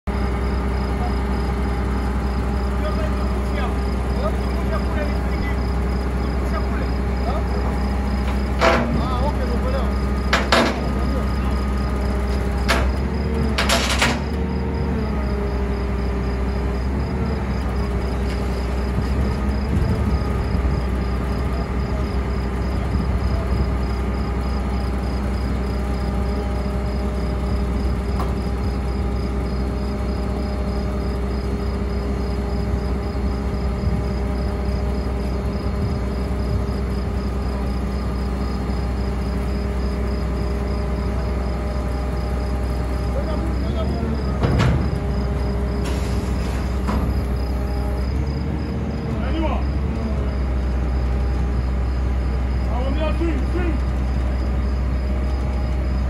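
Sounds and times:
diesel truck engine droning: 0:00.0 - 0:56.0
sharp metallic knocks: 0:10.3 - 0:10.9.

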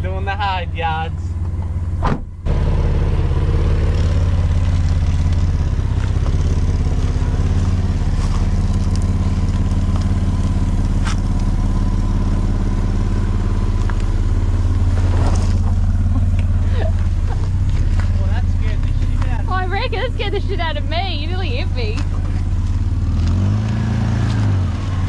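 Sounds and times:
vehicle engine running at low revs: 0:00.0 - 0:25.0
stones clicking under tyres: 0:03.8 - 0:19.4, 0:21.9 - 0:25.0.

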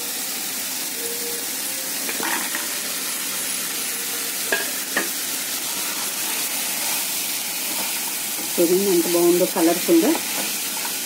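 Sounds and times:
masala sizzling in a frying pan: 0:00.0 - 0:11.0
spatula stirring: 0:04.5 - 0:08.7, 0:10.1 - 0:11.0.

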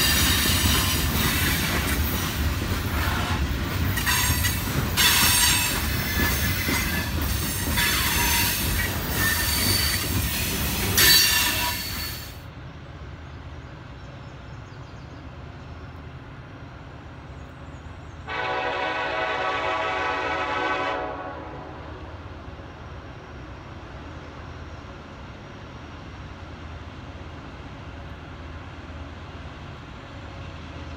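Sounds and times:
train wheels squealing: 0:00.0 - 0:12.4
locomotive horn blast: 0:02.9 - 0:03.4, 0:18.3 - 0:22.2.

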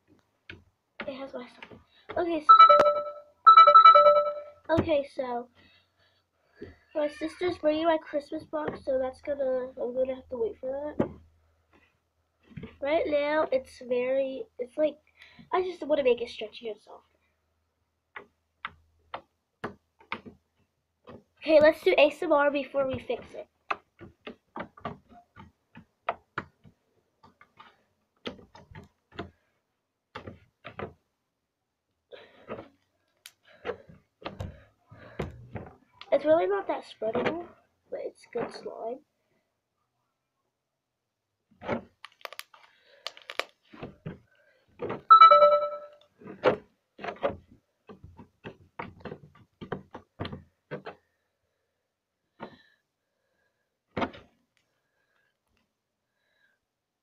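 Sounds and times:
ringing tone: 0:02.5 - 0:04.6, 0:45.1 - 0:46.0.

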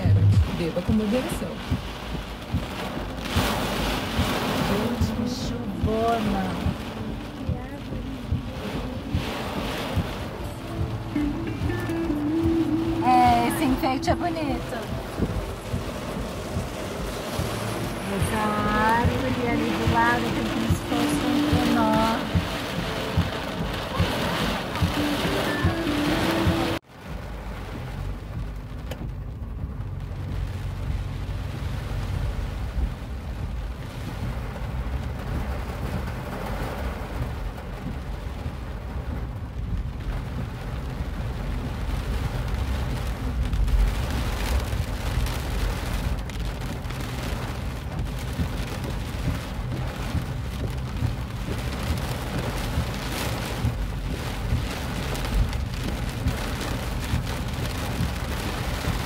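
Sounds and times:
car rumbling on road: 0:00.0 - 0:59.0
heavy rain on car roof: 0:00.0 - 0:59.0.

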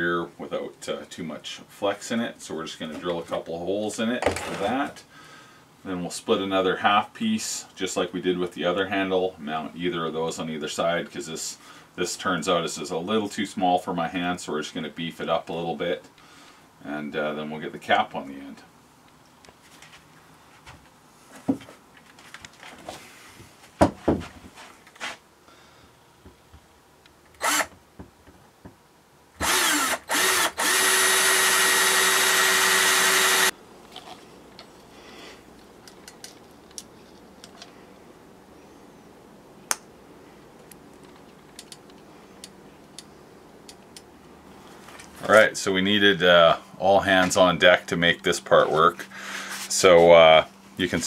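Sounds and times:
cordless drill drilling: 0:27.4 - 0:27.7, 0:29.4 - 0:33.5.

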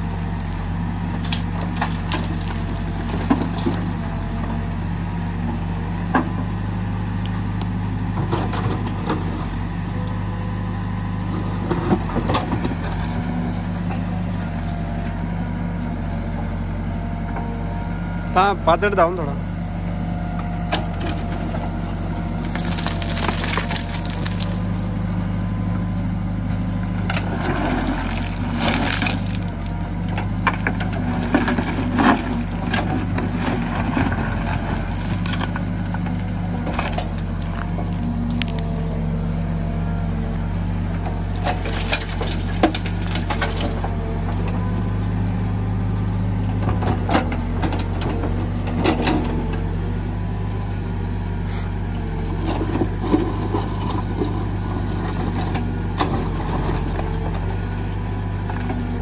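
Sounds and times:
diesel engine running: 0:00.0 - 0:59.0
bucket scraping through stony soil: 0:21.1 - 0:25.2.

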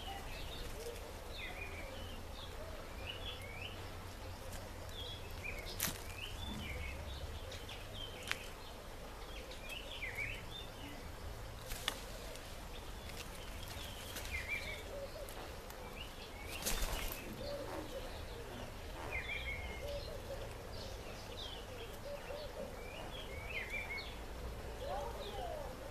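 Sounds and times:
birds chirping: 0:00.0 - 0:25.9.

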